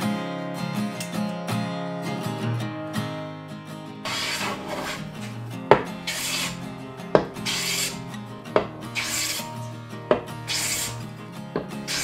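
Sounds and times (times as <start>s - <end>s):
hand plane rasping on wood: 4.1s - 5.3s, 6.0s - 6.6s, 7.4s - 8.0s, 8.9s - 9.6s, 10.5s - 11.0s.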